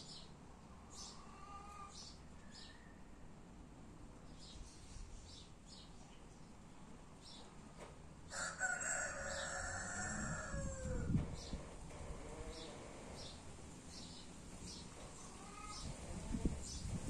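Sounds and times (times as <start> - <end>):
rooster crowing: 8.3 - 11.2.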